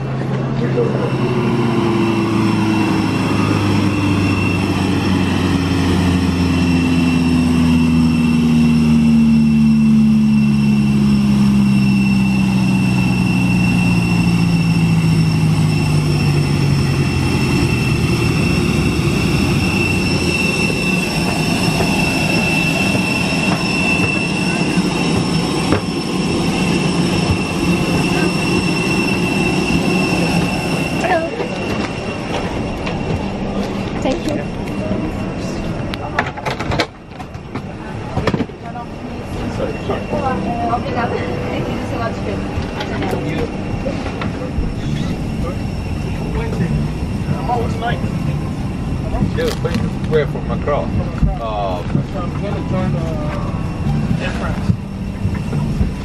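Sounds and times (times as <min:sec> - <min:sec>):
high steady whine: 0:00.0 - 0:56.0
low machine hum falling in pitch: 0:00.0 - 0:56.0.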